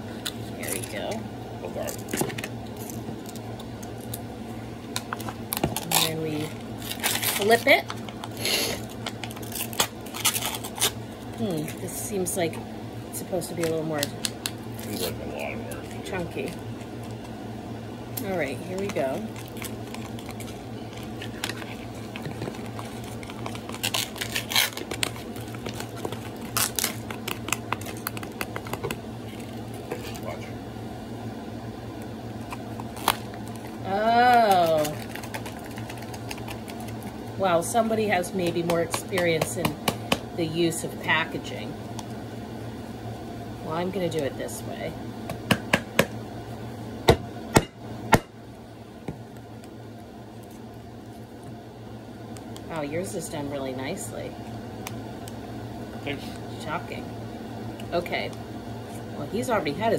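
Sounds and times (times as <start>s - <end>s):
steady low hum: 0.0s - 59.9s
plastic cup crinkling and clicking: 18.8s - 30.0s, 34.5s - 37.2s.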